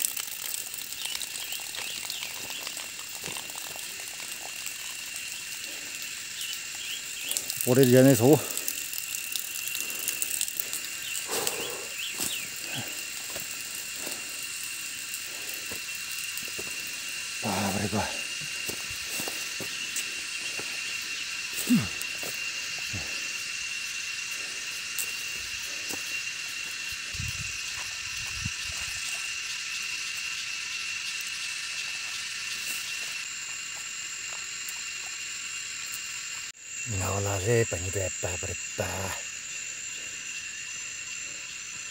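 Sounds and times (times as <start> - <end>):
water trickling: 0.0 - 25.0
high insect drone: 0.0 - 41.9
bird chirps: 11.0 - 12.6
footsteps rustling dry leaves: 18.5 - 20.9.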